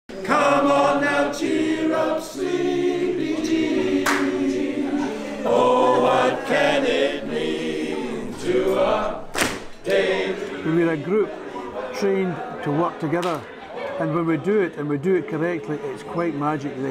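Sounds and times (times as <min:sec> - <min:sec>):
male chorus singing a cappella: 0:00.1 - 0:13.1.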